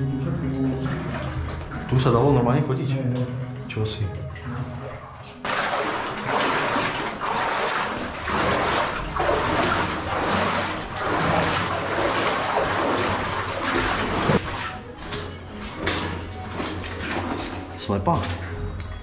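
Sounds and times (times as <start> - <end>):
splashing steps wading through water: 4.4 - 18.6.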